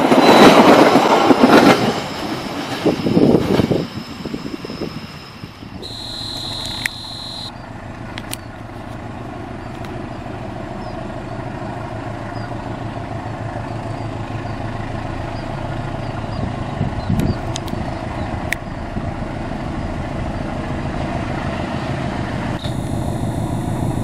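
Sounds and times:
diesel locomotive engine droning: 0:00.0 - 0:24.0
high steady tone: 0:05.7 - 0:07.6, 0:22.6 - 0:24.0.

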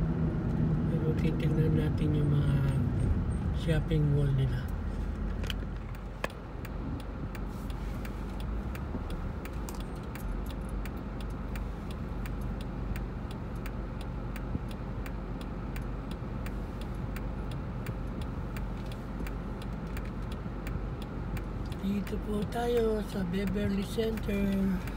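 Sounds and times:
car engine idling hum: 0:00.0 - 0:24.9
turn signal ticking: 0:00.1 - 0:24.9.

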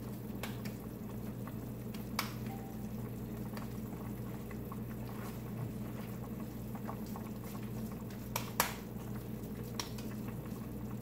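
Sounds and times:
low electrical hum: 0:00.0 - 0:11.0
hands patting wet meat: 0:08.2 - 0:08.9.

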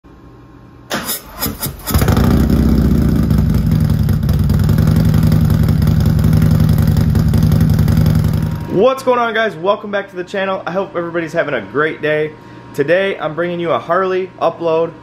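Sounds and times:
motorcycle engine starting: 0:00.9 - 0:08.7
motorcycle engine idling: 0:01.7 - 0:08.7.

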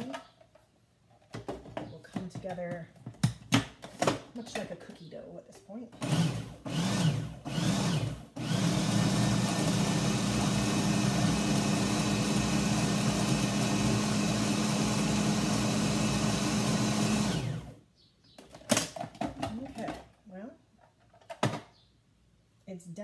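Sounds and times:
food processor motor: 0:06.0 - 0:17.8.

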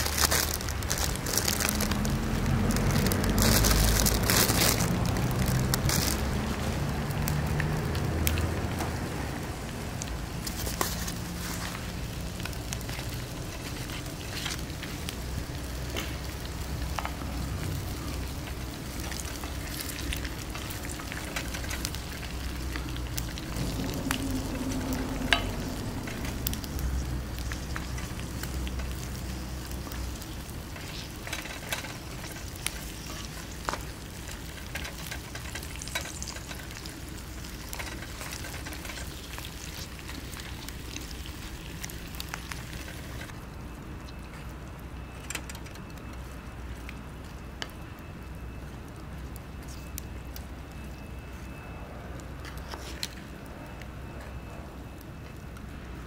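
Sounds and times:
sharp ticks and pops: 0:12.3 - 0:43.4.

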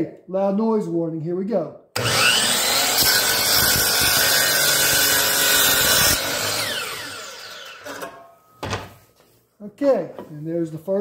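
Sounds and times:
miter saw running: 0:02.0 - 0:08.0
saw blade cutting block: 0:02.0 - 0:08.3.

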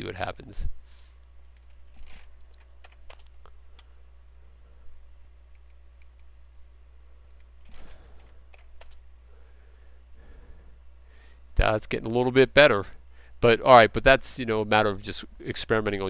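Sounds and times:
low steady hum: 0:00.0 - 0:16.0
keyboard and mouse clicks: 0:01.4 - 0:03.9, 0:05.5 - 0:06.3, 0:07.3 - 0:09.0.

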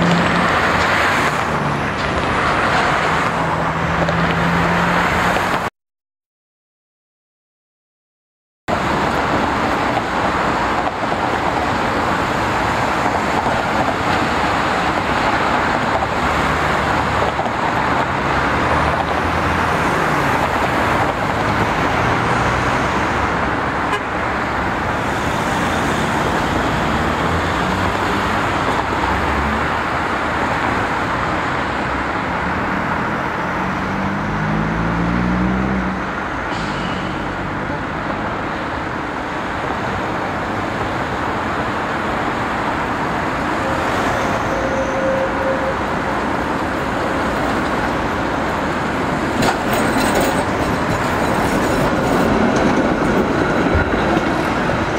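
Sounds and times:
vehicle accelerating: 0:00.0 - 0:05.6, 0:31.6 - 0:38.6
street traffic: 0:00.0 - 0:05.7, 0:08.7 - 0:54.9
streetcar running on tracks: 0:00.0 - 0:05.7, 0:08.7 - 0:54.9.

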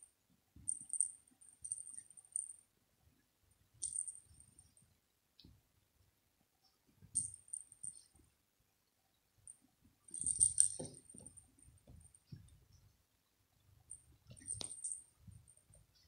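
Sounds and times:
bell in toy ball jingling: 0:10.1 - 0:11.3, 0:14.4 - 0:15.1.

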